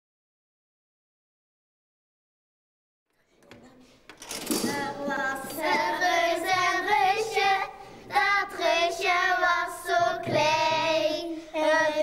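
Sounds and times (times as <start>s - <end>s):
girls singing together: 4.5s - 12.0s.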